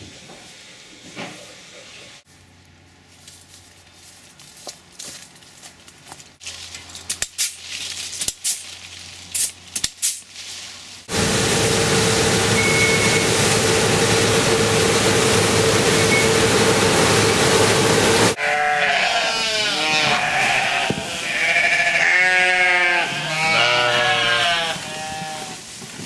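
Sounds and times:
combine harvester running: 11.1s - 18.4s
lambs bleating: 18.4s - 25.6s.

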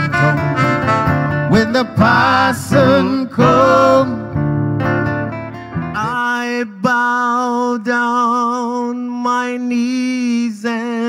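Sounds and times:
man singing a hymn unaccompanied: 1.5s - 4.3s, 6.0s - 11.0s.

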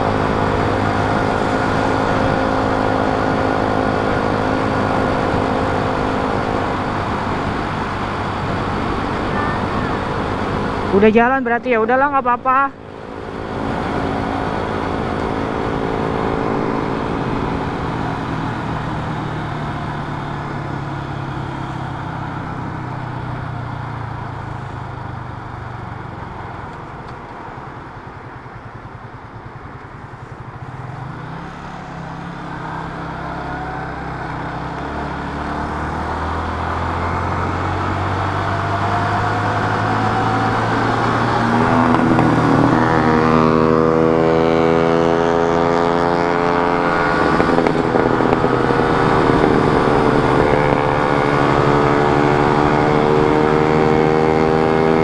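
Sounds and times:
motorcycle engine: 0.0s - 55.0s
wind rush: 46.2s - 53.6s.

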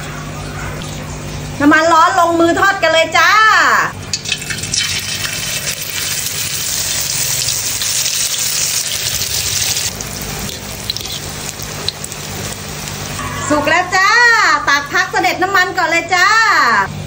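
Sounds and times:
batter sizzling in hot oil: 4.1s - 13.9s.

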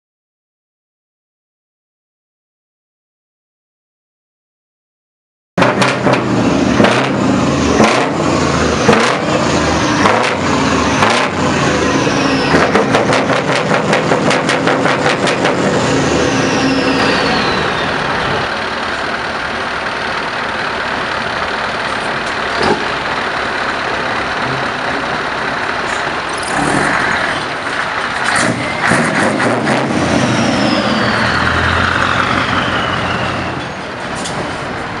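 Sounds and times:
truck diesel engine revving: 5.6s - 35.0s
falling turbo whistle: 30.1s - 33.8s.

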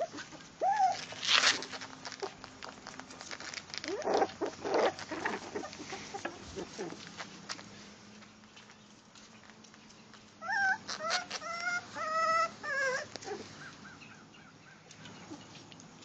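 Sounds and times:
puppy crying: 0.0s - 1.4s, 10.4s - 14.0s.

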